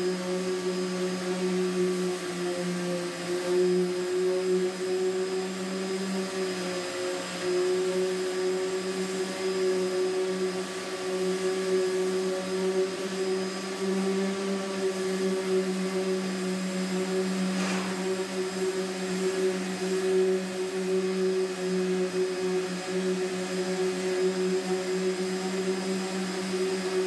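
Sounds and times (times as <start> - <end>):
electric sander on fiberglass: 0.0 - 27.0
sharp scrape: 17.5 - 18.2.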